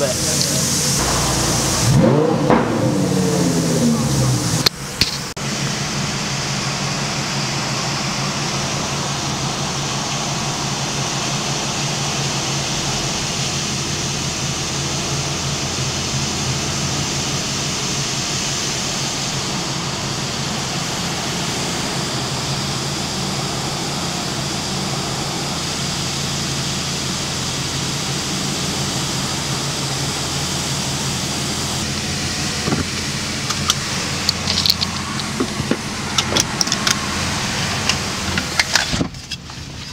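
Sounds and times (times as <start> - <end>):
steady low hum: 0.0 - 39.9
water jets spraying car: 0.0 - 39.9
sharp clicks and knocks: 4.6 - 5.3.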